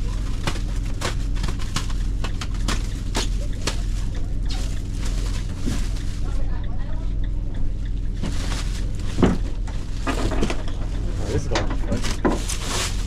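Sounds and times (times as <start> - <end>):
van cabin rumble: 0.0 - 13.0
clicks and rattles: 7.5 - 13.0.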